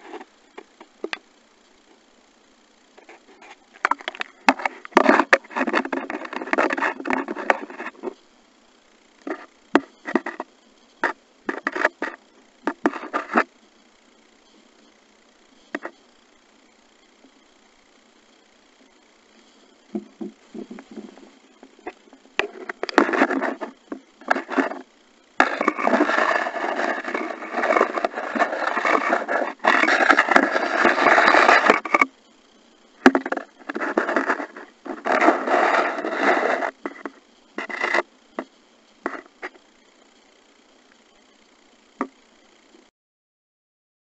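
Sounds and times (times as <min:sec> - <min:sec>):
muffled underwater rubbing: 0:25.4 - 0:32.1.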